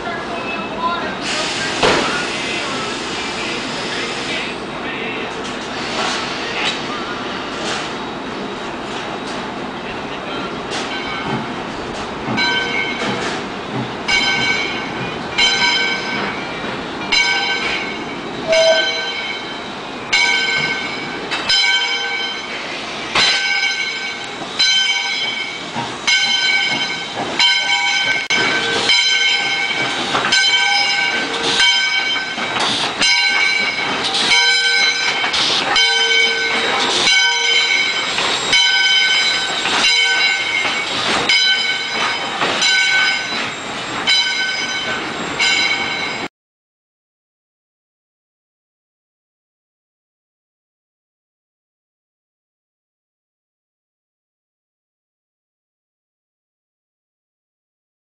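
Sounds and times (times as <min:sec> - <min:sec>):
steam locomotive moving slowly: 0:00.0 - 0:46.3
steam hissing: 0:01.1 - 0:04.6, 0:05.6 - 0:08.0, 0:28.1 - 0:44.1
locomotive bell ringing: 0:10.2 - 0:11.5, 0:12.3 - 0:46.3.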